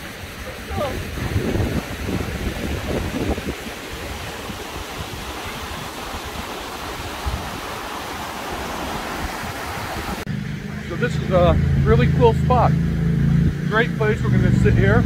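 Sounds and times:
wind buffeting microphone: 0.0s - 10.4s
waterfall rushing: 0.0s - 13.1s.

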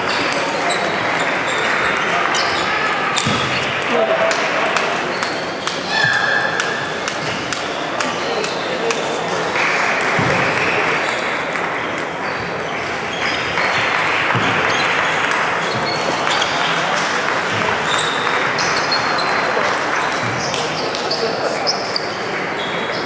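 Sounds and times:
hubbub of voices: 0.0s - 23.0s
table tennis balls clicking: 10.0s - 17.1s, 17.9s - 21.2s.

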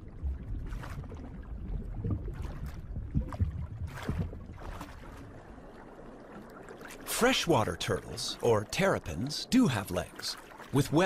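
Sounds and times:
low rumble: 0.0s - 6.3s
water swishing and sloshing: 0.0s - 11.0s.

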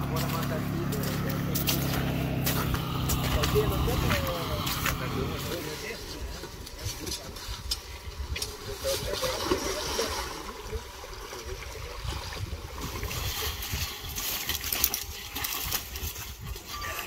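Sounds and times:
water sloshing in ice hole: 8.8s - 17.0s.

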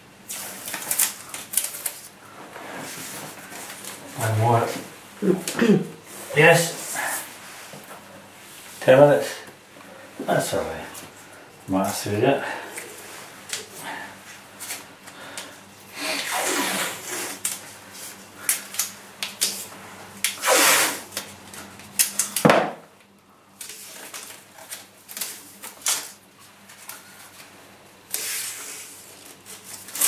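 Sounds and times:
masking tape ripping: 0.3s - 2.1s, 16.0s - 17.6s, 20.2s - 21.3s, 29.5s - 30.0s
tape strips rustling and tapping: 0.3s - 2.1s, 17.4s - 20.4s, 21.1s - 27.5s, 29.1s - 30.0s.

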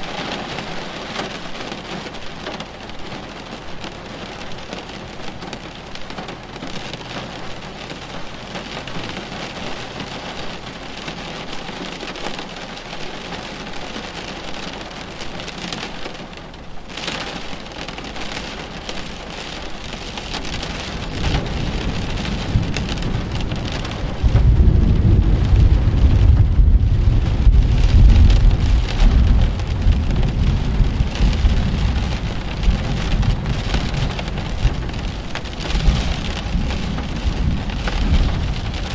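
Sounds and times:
steady rain: 0.0s - 38.9s
thunder rumbling: 17.0s - 38.9s.

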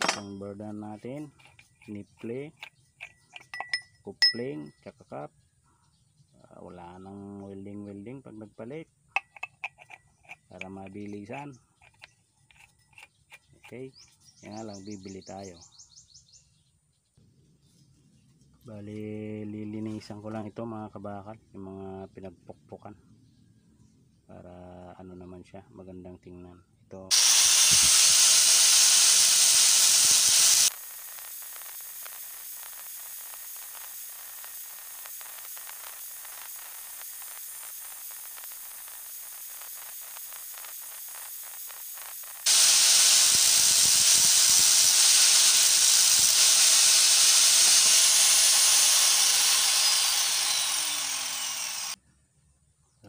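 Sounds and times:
angle grinder grinding steel: 0.0s - 4.6s, 27.1s - 52.0s.

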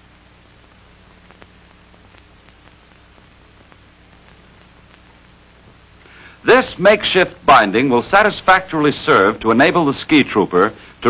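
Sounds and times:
film soundtrack hiss and hum: 0.0s - 11.0s
faint clicks: 1.1s - 5.8s.

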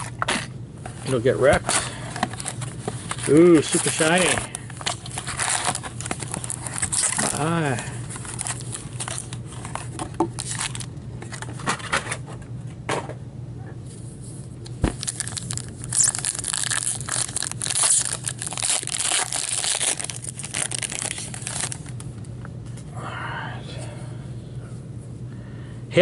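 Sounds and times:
foil wrapper crinkling and tearing: 2.2s - 11.5s, 14.9s - 22.1s.

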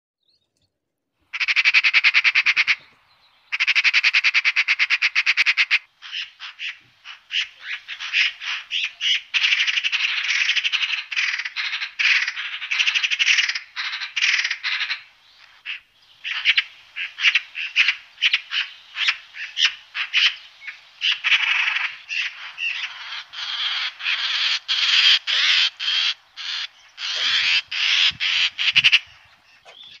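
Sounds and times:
magpies chattering: 1.3s - 30.0s.

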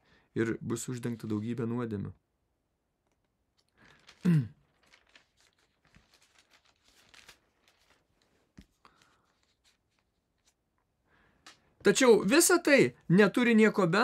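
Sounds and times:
paper pages rustling: 0.8s - 1.7s, 3.0s - 12.0s.

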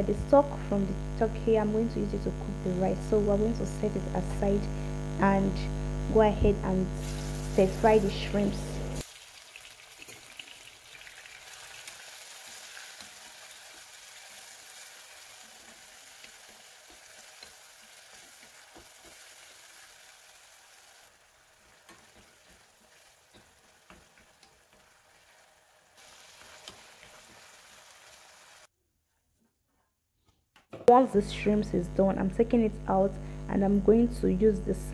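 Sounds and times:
shrimps sizzling in hot oil: 6.9s - 28.7s.

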